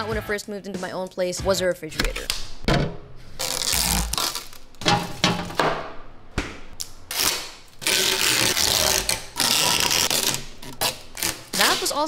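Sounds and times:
plastic wrap rustling: 3.2s - 5.6s, 7.1s - 12.0s.

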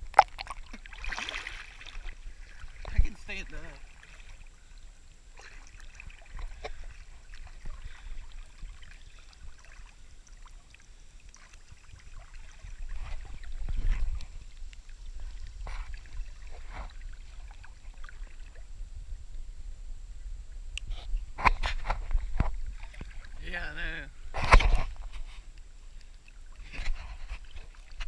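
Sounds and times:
creek water lapping and splashing: 0.0s - 19.6s, 20.3s - 28.0s
person splashing in water: 0.2s - 3.2s
steady low rumble: 12.6s - 26.2s.

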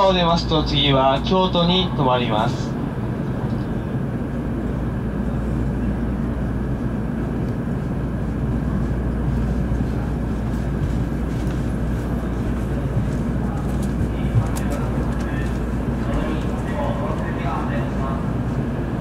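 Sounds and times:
train car hum and hiss: 0.0s - 19.0s.

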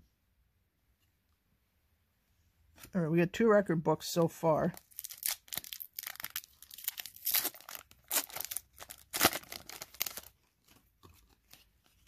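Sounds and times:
foil wrapper crinkling: 4.8s - 10.4s.

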